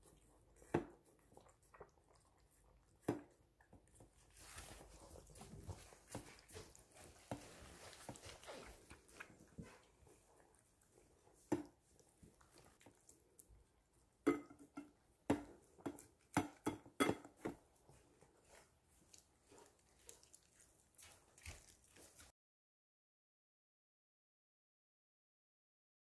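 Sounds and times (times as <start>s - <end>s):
dog slurping and chewing: 0.0s - 14.7s, 15.4s - 22.3s
metal bowl knocking: 14.3s - 15.4s.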